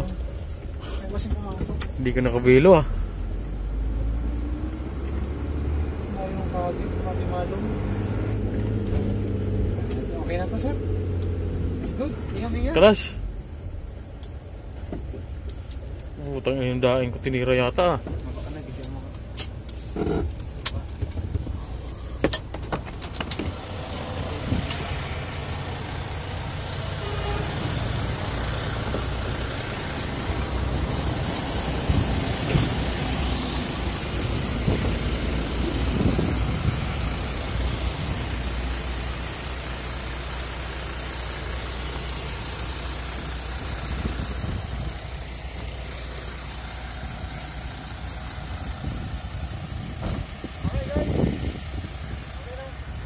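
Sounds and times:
diesel truck engine idling: 0:09.7 - 0:53.0.

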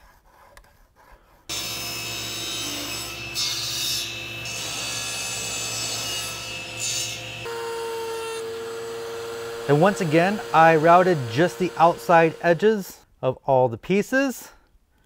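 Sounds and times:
table saw cutting wood: 0:01.5 - 0:13.0
steady motor whine: 0:08.4 - 0:12.6.

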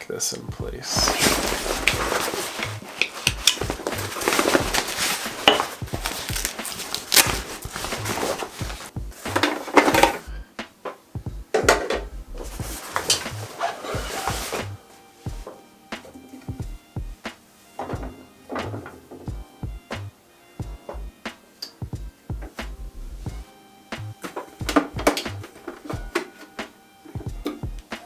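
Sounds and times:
stiff fabric rustling and crinkling: 0:00.8 - 0:10.3, 0:12.4 - 0:19.4.

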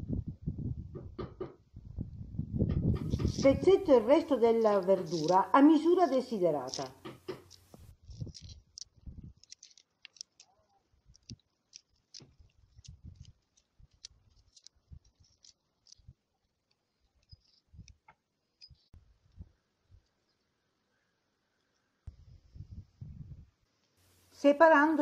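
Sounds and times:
salad greens snapping: 0:04.3 - 0:06.0, 0:06.6 - 0:10.5, 0:11.1 - 0:16.0.

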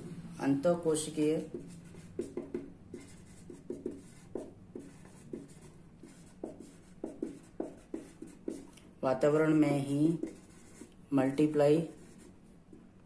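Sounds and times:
felt-tip marker writing on paper: 0:01.3 - 0:08.7, 0:09.9 - 0:10.9.

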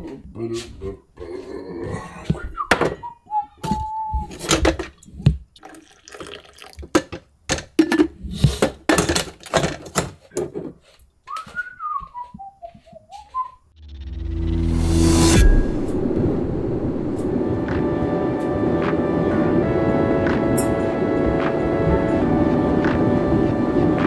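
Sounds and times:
coffee pouring into glass cup: 0:05.6 - 0:06.9.

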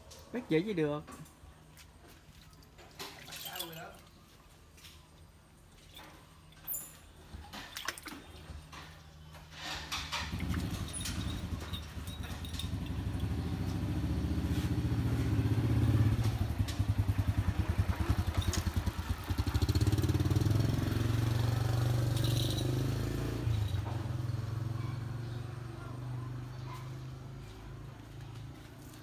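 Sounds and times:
motorcycle passing by: 0:09.6 - 0:29.0.

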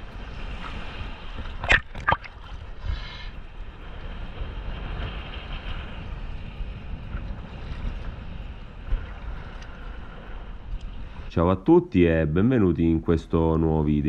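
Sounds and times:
choppy sea waves slapping: 0:00.0 - 0:14.0
wind rumbling on microphone: 0:00.0 - 0:14.0
sharp splashes: 0:01.6 - 0:02.6.

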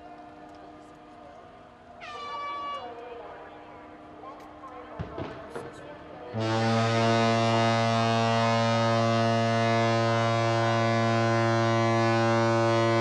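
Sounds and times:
ship's horn deep blast: 0:06.3 - 0:13.0.

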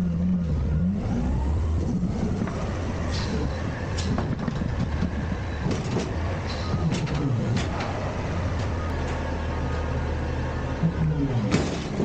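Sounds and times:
garbage truck engine under load: 0:00.0 - 0:12.0
dumpster clanks and knocks: 0:03.9 - 0:09.2, 0:11.4 - 0:12.0.

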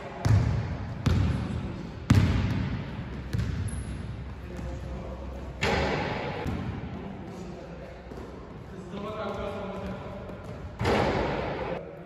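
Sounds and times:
ball hitting hoop: 0:00.2 - 0:01.4, 0:02.1 - 0:04.0, 0:05.6 - 0:06.9, 0:09.8 - 0:11.6
basketball bouncing on hardwood floor: 0:02.1 - 0:03.6.

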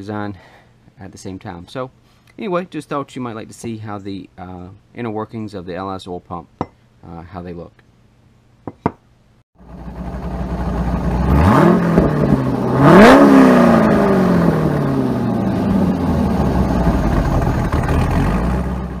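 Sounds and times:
car engine revving and idling: 0:09.6 - 0:19.0.

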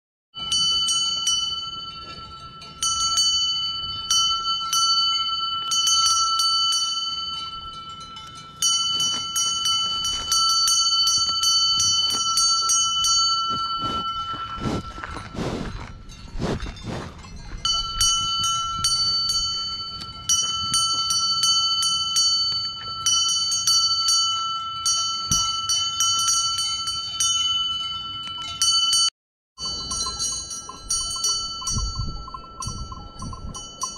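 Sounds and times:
cowbell clanging: 0:00.4 - 0:33.9
cow breathing into microphone: 0:13.5 - 0:17.6.

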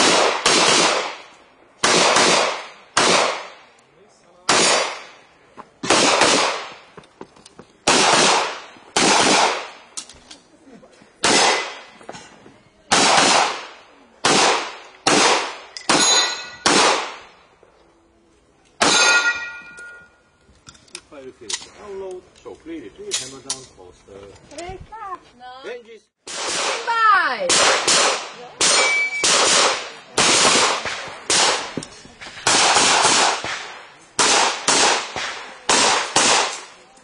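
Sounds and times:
handgun shots: 0:27.5 - 0:31.8.

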